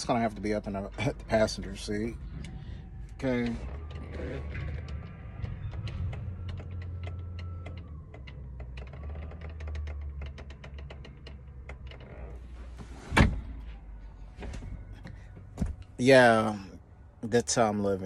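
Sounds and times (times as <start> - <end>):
low hum in truck cab: 0.0 - 18.0
light clicks and rattles: 3.2 - 12.5.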